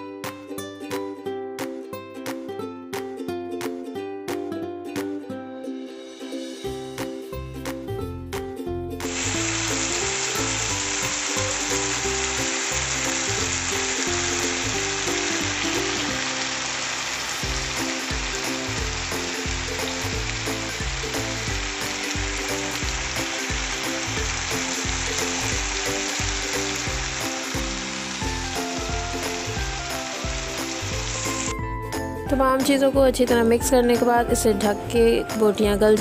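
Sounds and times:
chicken sizzling in oil: 0:09.1 - 0:32.1
background music with low beat: 0:17.4 - 0:36.0.

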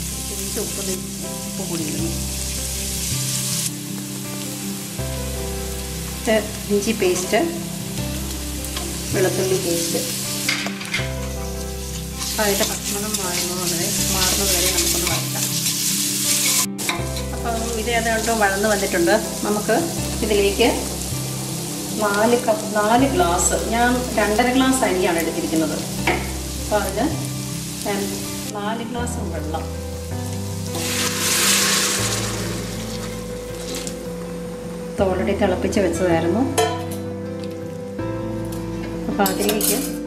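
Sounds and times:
onions sizzling in hot oil: 0:00.0 - 0:35.9
metal spatula scraping pan: 0:14.2 - 0:17.3.

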